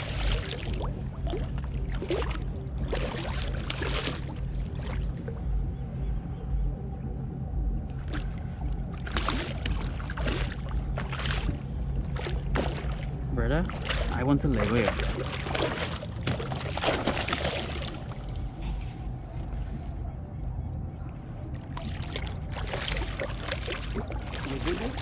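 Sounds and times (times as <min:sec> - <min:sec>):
fish splashing at water surface: 0:00.0 - 0:05.1, 0:09.0 - 0:13.1, 0:13.7 - 0:19.0, 0:21.7 - 0:25.0
steady low rumble: 0:00.0 - 0:25.0.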